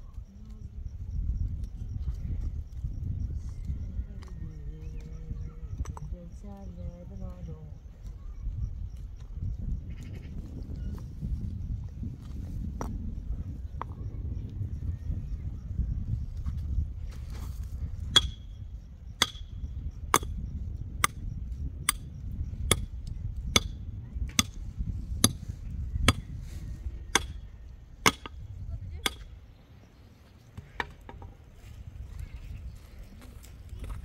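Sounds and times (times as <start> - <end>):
digging tool chopping stony soil: 18.1 - 18.4, 19.2 - 19.5, 20.1 - 20.4, 23.5 - 24.6, 27.1 - 27.4, 28.0 - 28.4.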